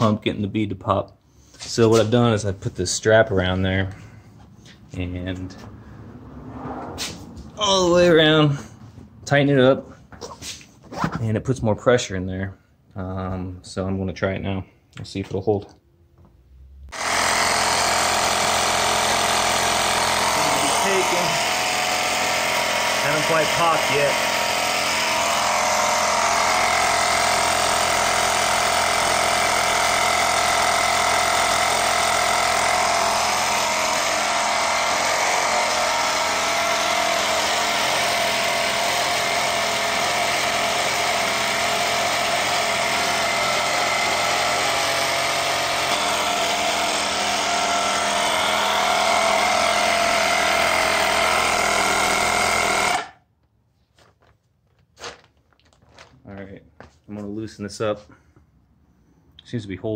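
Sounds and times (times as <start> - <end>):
electric air pump running: 16.9 - 53.2.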